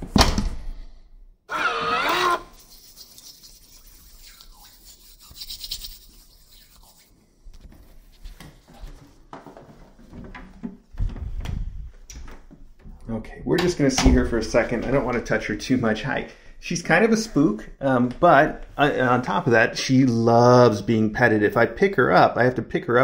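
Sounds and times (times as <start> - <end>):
hand rubbing cat fur: 2.5 - 9.0.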